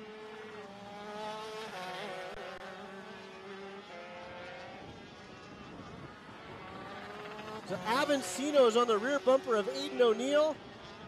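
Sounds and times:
kart engines buzzing: 0:00.0 - 0:11.0.

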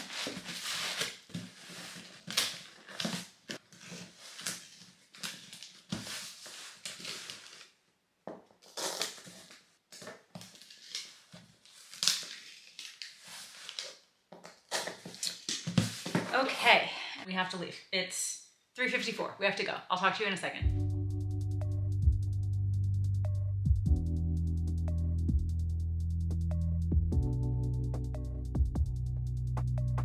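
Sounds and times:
cardboard flaps folding: 0:00.0 - 0:07.6
packing tape rubbed onto box: 0:00.0 - 0:07.6, 0:08.6 - 0:09.6
tissue paper rustling: 0:00.0 - 0:07.8, 0:10.5 - 0:14.0.

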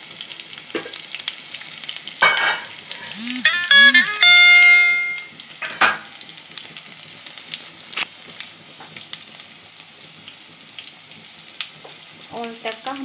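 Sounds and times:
spices sizzling in hot oil: 0:00.0 - 0:13.0
loud pitched tone: 0:03.0 - 0:05.3.

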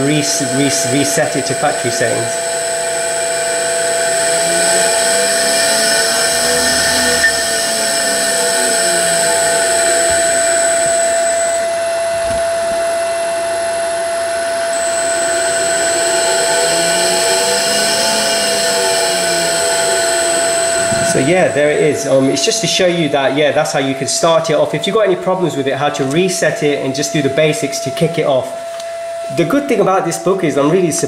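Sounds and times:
faint rising and falling tones: 0:00.0 - 0:22.8
electric motor whine: 0:00.0 - 0:23.1.

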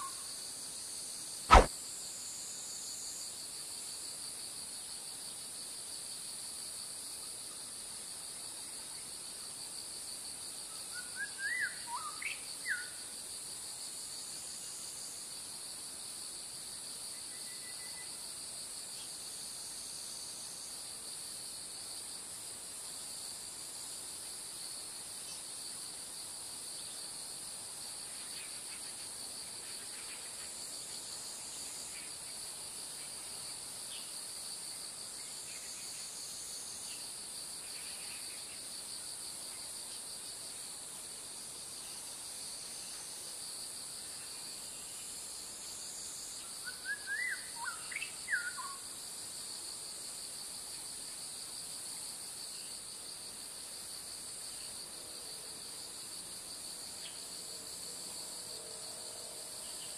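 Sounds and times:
insects trilling: 0:10.7 - 0:13.2, 0:44.0 - 0:51.4.

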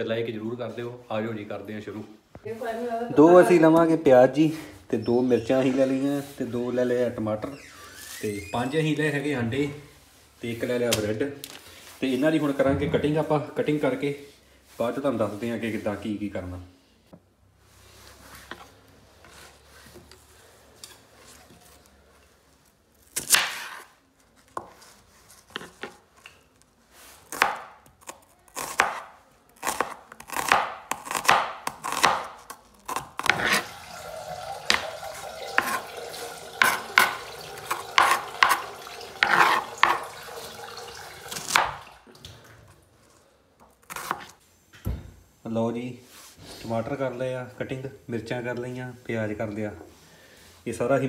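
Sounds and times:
knife chopping on cutting board: 0:27.3 - 0:27.8, 0:28.6 - 0:33.6, 0:36.6 - 0:40.1, 0:41.3 - 0:41.8, 0:43.8 - 0:44.4.

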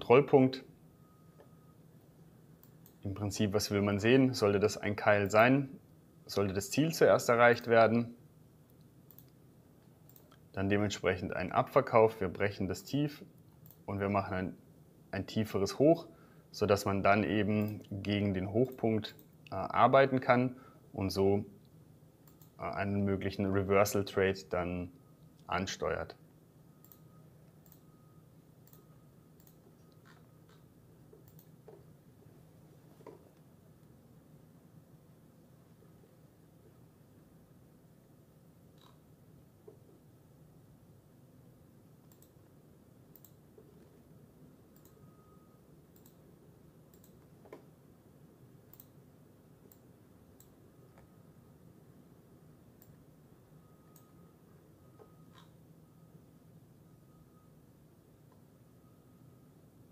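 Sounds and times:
faint room hum: 0:00.0 - 0:59.9
computer mouse clicks: 0:08.7 - 0:10.4, 0:13.5 - 0:13.9, 0:22.2 - 0:22.6, 0:26.8 - 0:27.9, 0:28.6 - 0:31.9, 0:38.7 - 0:39.0, 0:42.0 - 0:42.5, 0:43.1 - 0:43.9, 0:44.8 - 0:45.0, 0:46.0 - 0:46.2, 0:46.9 - 0:47.7, 0:48.7 - 0:49.0, 0:49.6 - 0:51.1, 0:52.8 - 0:53.0, 0:55.0 - 0:55.6.

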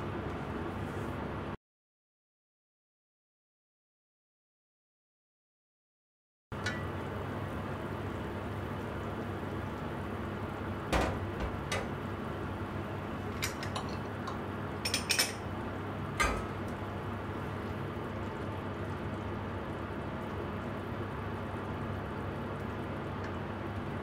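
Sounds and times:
stew simmering in a pot: 0:06.6 - 0:24.0
pot lid clinking: 0:13.4 - 0:15.4.

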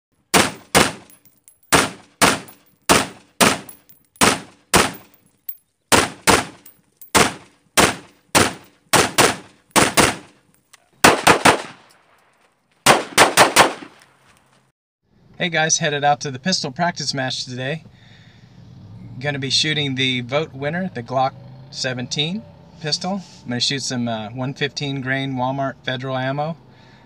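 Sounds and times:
rifle shots with echo: 0:00.3 - 0:05.1, 0:05.9 - 0:10.3, 0:11.0 - 0:12.1, 0:12.9 - 0:14.0
pistol shots: 0:00.3 - 0:05.2, 0:05.9 - 0:10.3, 0:11.0 - 0:12.1, 0:12.9 - 0:14.0.

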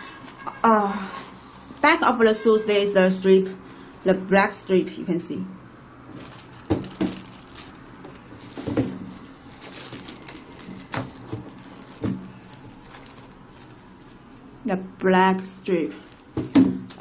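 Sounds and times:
soft rustling of shoebox: 0:06.1 - 0:14.4.

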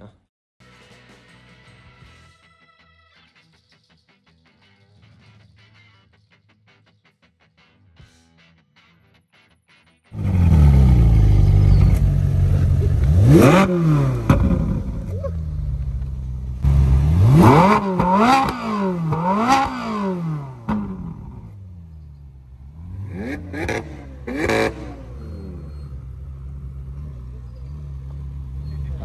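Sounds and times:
car engine idling and revving: 0:10.1 - 0:29.0.

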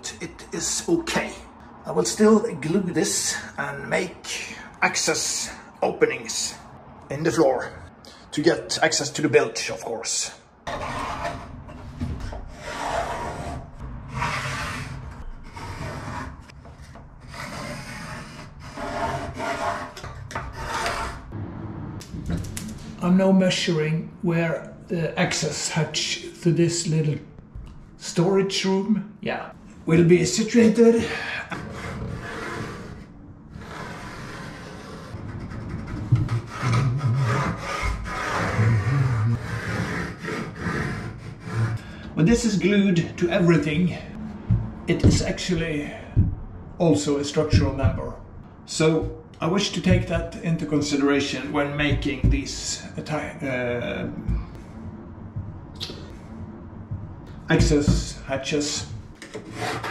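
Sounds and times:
spirit level scraping across wood: 0:10.7 - 0:21.3, 0:31.0 - 0:46.3, 0:48.8 - 0:54.8, 0:57.5 - 0:59.9
pencil scratching on wood: 0:12.2 - 0:21.2, 0:33.6 - 0:41.9, 0:59.3 - 0:59.9.

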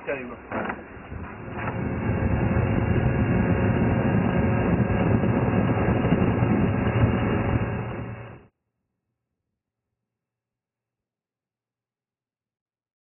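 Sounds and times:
boat engine drone: 0:00.0 - 0:08.5.

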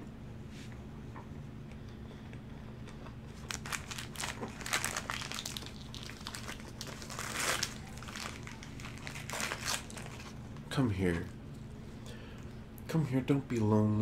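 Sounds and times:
paper wrapper crinkling: 0:03.3 - 0:10.7.

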